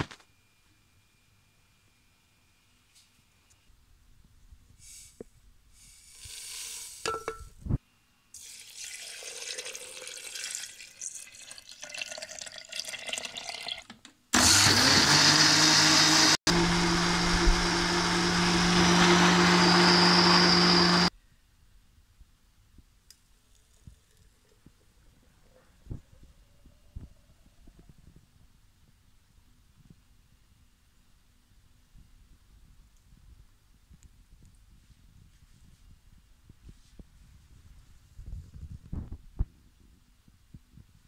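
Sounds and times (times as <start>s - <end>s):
milk pouring into blender jar: 8.4s - 14.0s
electric blender motor running: 14.4s - 21.1s.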